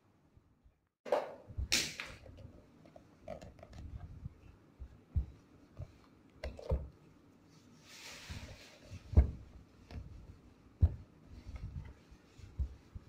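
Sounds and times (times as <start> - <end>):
iron sliding on fabric: 7.5 - 13.0.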